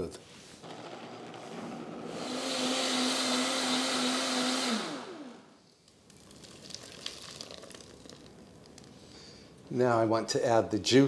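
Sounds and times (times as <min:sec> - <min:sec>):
electric blender running: 0:00.6 - 0:05.6.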